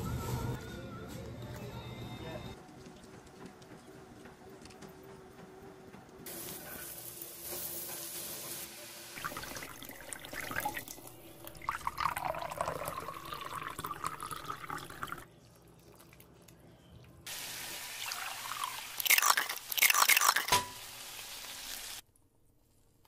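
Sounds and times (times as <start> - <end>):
soup boiling and bubbling: 9.1 - 16.6, 17.3 - 20.7.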